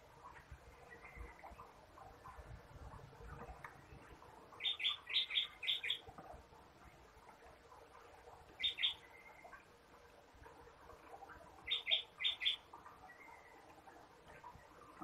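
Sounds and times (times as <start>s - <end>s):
small bird chirping: 4.6s - 6.1s, 8.6s - 9.4s, 11.7s - 13.5s.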